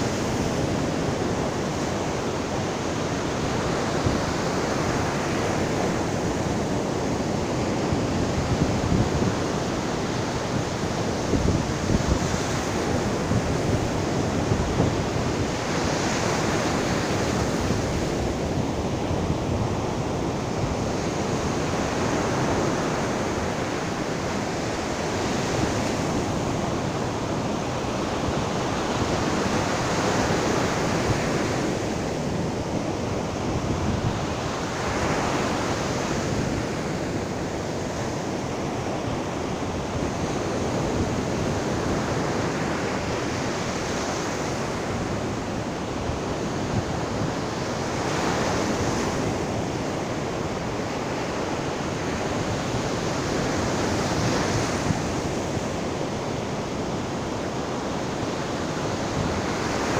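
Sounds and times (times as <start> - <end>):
small waves breaking on beach: 0.0 - 59.9.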